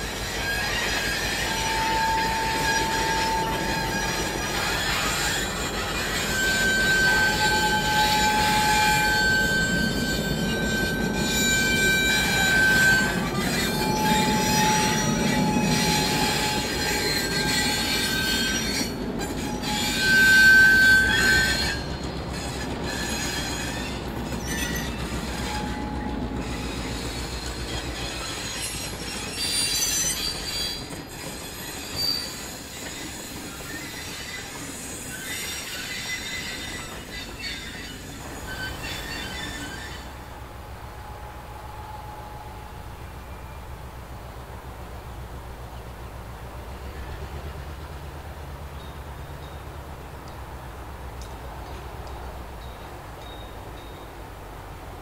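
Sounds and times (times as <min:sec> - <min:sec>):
wheels squealing: 0:00.0 - 0:43.8
train rumbling past: 0:00.0 - 0:55.0.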